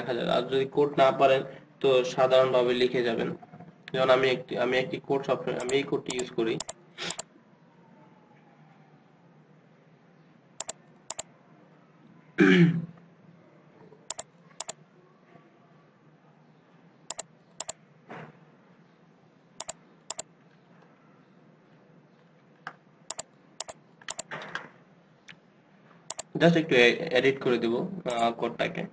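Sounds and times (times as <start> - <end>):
computer mouse clicks: 5.6 - 7.3, 10.6 - 11.3, 14.1 - 14.8, 17.1 - 17.8, 19.6 - 20.3, 22.6 - 24.6, 26.1 - 26.4, 28.1 - 28.3
person clearing throat: 12.4 - 13.0.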